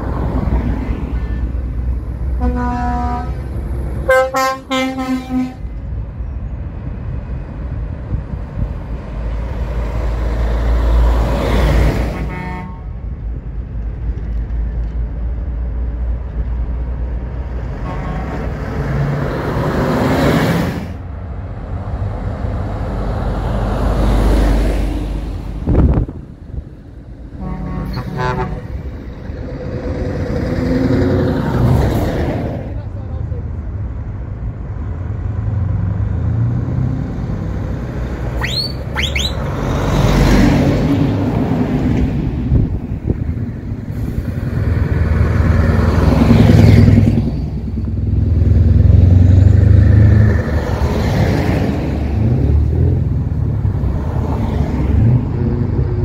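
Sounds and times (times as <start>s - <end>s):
lorry diesel engines passing: 0.0s - 56.0s
truck air horn blasts: 2.4s - 3.4s, 4.0s - 5.7s, 12.1s - 13.0s, 17.8s - 18.5s, 27.4s - 28.8s, 38.4s - 39.4s.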